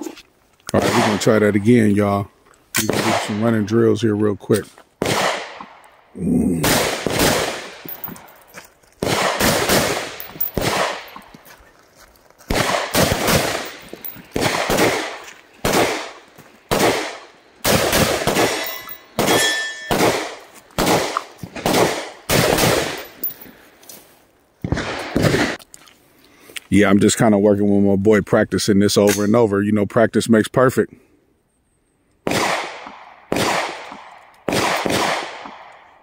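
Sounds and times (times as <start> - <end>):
rifle shots with echo: 0.8 - 1.5, 2.8 - 3.8, 5.0 - 5.8, 6.6 - 8.3, 9.0 - 11.3, 12.5 - 23.3, 24.7 - 25.6, 32.2 - 36.0.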